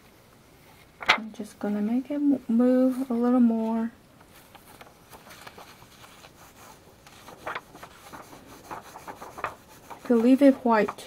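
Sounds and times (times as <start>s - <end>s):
paper handling: 2.7s - 11.0s
fingers rubbing paper card: 2.8s - 11.0s
paper scrape: 4.3s - 11.0s.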